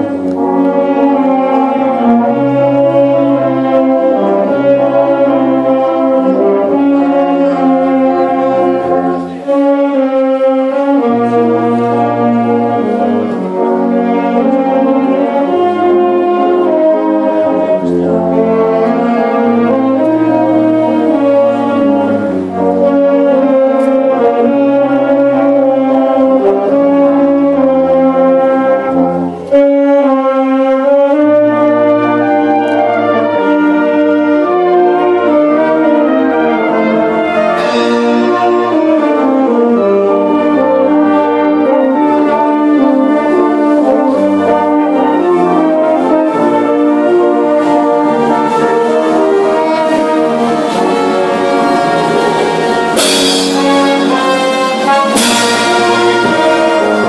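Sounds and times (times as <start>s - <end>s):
wind band playing: 0.0s - 57.0s
cymbal crash: 51.9s - 57.0s.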